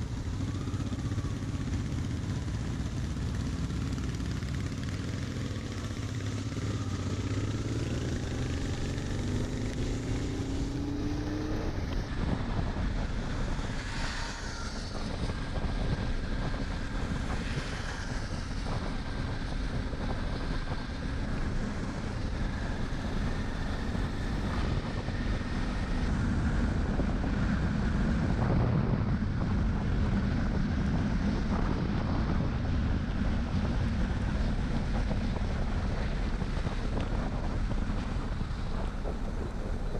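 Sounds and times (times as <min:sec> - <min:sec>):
motorcycle engine accelerating: 0:00.0 - 0:39.9
wind noise on microphone: 0:06.2 - 0:39.9.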